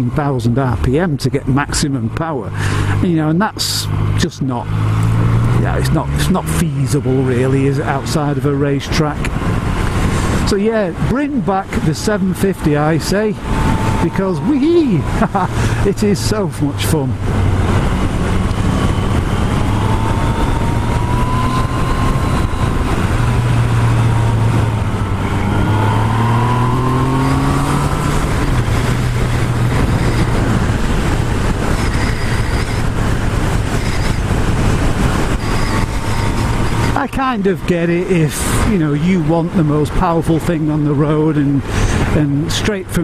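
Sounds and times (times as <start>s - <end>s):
heavy wind noise: 0.0s - 43.0s
motorcycle engine running: 12.0s - 37.2s.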